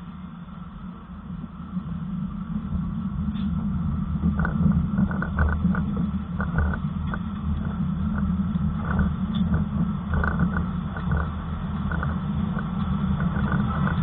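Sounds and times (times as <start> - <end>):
train rumbling past: 0.0 - 14.0
wheels knocking on track: 4.2 - 14.0.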